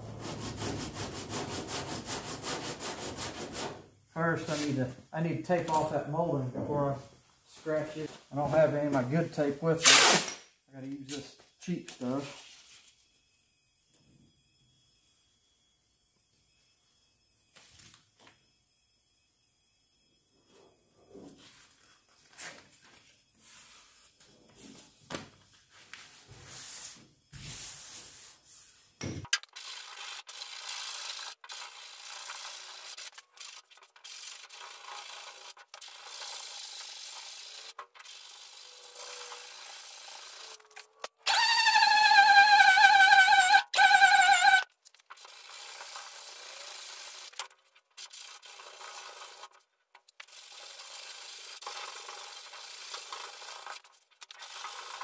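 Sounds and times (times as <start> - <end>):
sandpaper rasping: 0.1 - 3.8, 29.6 - 40.8
loud high squeal: 41.2 - 44.7.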